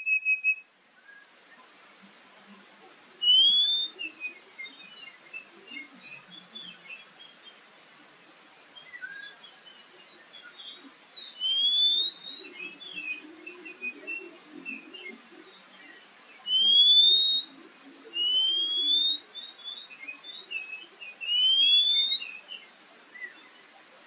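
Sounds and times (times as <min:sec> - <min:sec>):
bird whistling: 0:00.0 - 0:01.2, 0:03.2 - 0:04.4, 0:11.4 - 0:14.9, 0:16.5 - 0:22.5
bird chirping softly: 0:00.0 - 0:24.0.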